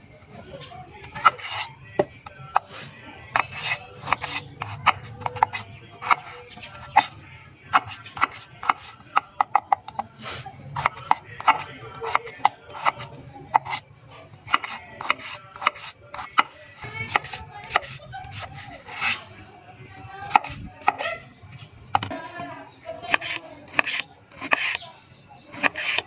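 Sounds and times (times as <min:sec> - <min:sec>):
knife chopping onions on a plate: 0:01.0 - 0:02.7, 0:03.3 - 0:07.1, 0:07.7 - 0:10.1, 0:10.7 - 0:19.2, 0:20.2 - 0:21.2, 0:23.1 - 0:24.8, 0:25.5 - 0:26.0.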